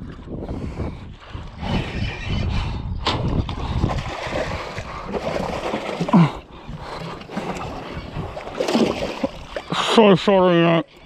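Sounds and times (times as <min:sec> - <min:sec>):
water splashing: 0:03.0 - 0:10.1.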